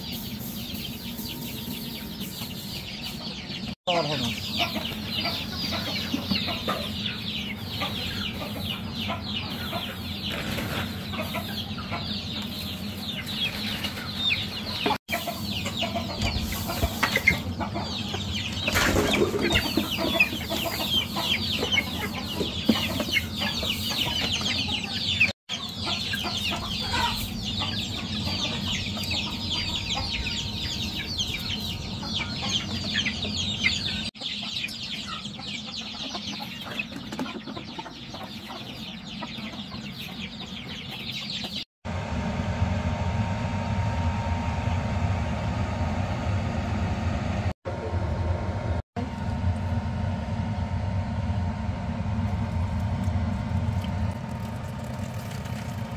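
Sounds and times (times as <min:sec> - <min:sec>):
chicks peeping: 0:00.0 - 0:41.7.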